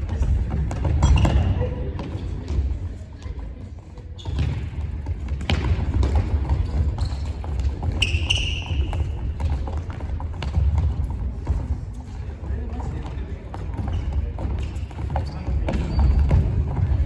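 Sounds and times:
soccer ball thuds: 0:04.3 - 0:11.9
brief high squeak: 0:08.0 - 0:08.8.

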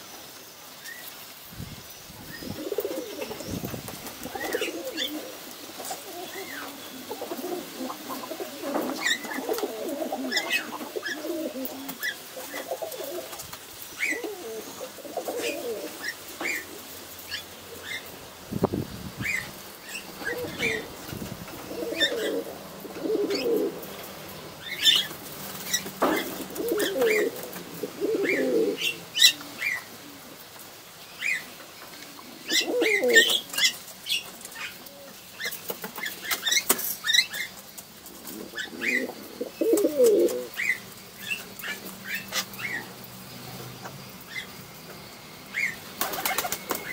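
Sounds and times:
pigeons cooing: 0:02.2 - 0:44.6, 0:45.5 - 0:46.9
pigeon wings flapping: 0:03.8 - 0:05.0, 0:45.9 - 0:46.9.

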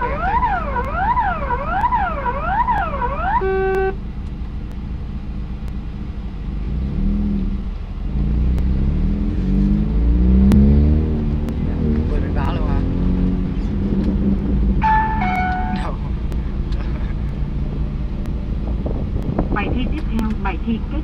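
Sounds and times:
electronic siren alarm wailing: 0:00.0 - 0:04.0, 0:14.8 - 0:15.8
car engine revving: 0:00.0 - 0:21.0
short beep: 0:14.8 - 0:16.0.

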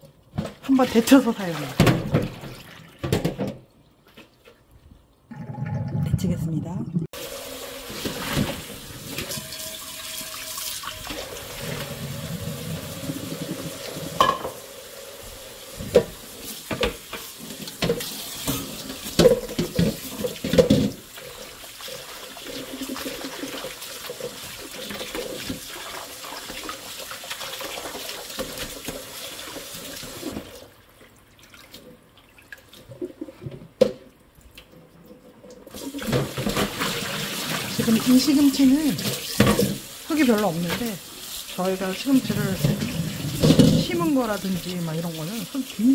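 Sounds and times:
pot knocking against sink: 0:14.1 - 0:14.6.

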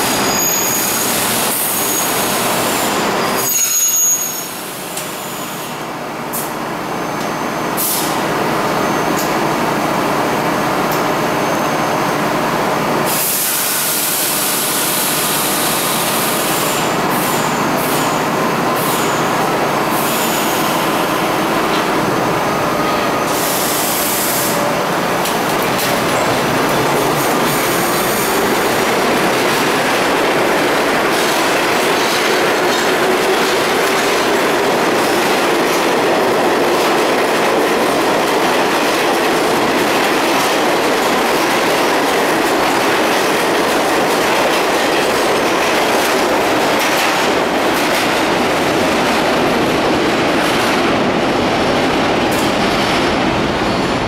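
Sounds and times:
steel wheels on rails echoing: 0:12.7 - 0:54.0.

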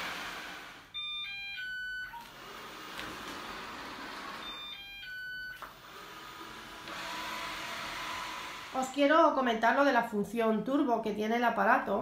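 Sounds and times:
electronic beeps: 0:00.9 - 0:02.3, 0:04.4 - 0:05.6
robot vacuum whirring: 0:02.1 - 0:05.0, 0:05.8 - 0:08.9.

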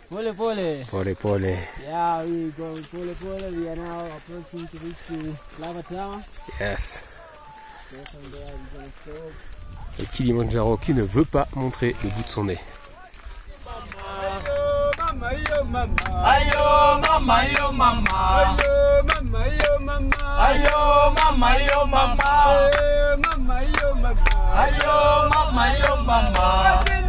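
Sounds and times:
man singing: 0:11.9 - 0:27.0
steady beat and bass: 0:13.7 - 0:27.0.

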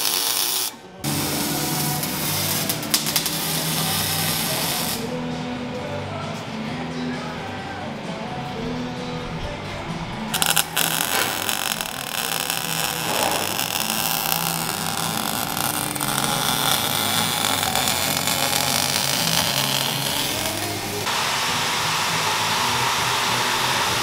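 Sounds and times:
welding arc crackling hiss: 0:00.0 - 0:05.1, 0:10.4 - 0:24.0
welding arc pops: 0:00.0 - 0:05.1, 0:10.4 - 0:21.1.

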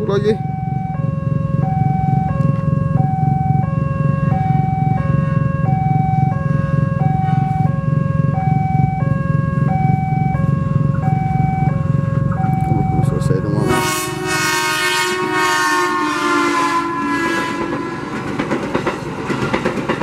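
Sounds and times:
level crossing two-tone signal: 0:00.0 - 0:13.8.

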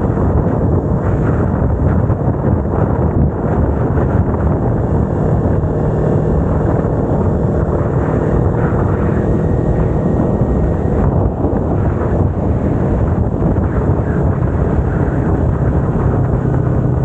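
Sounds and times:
motorcycle engine running: 0:00.0 - 0:17.0
wind rushing over microphone: 0:00.0 - 0:17.0.

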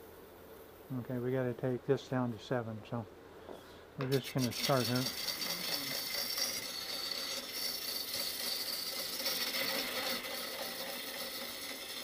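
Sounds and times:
wood lathe gouge hissing: 0:04.1 - 0:12.0.

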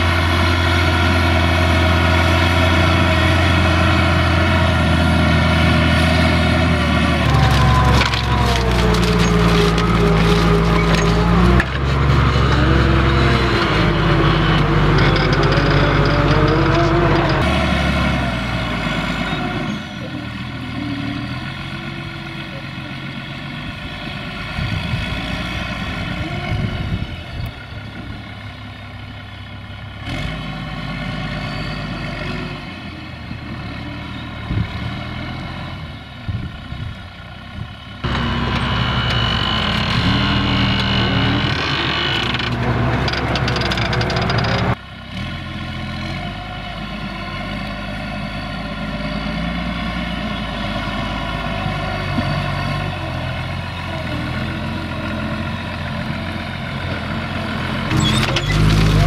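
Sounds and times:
tractor diesel engine under load: 0:00.0 - 0:59.0
steel discs crunching through soil: 0:02.2 - 0:21.4.

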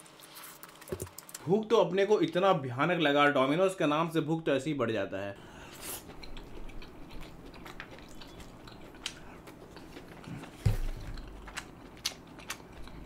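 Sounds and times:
chewing food: 0:05.6 - 0:13.0.

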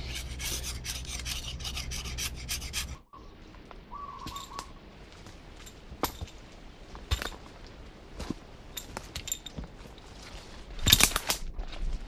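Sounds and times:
knife scraping wood: 0:00.0 - 0:03.0
forest ambience: 0:00.0 - 0:11.4
whistled bird call: 0:03.1 - 0:04.8.

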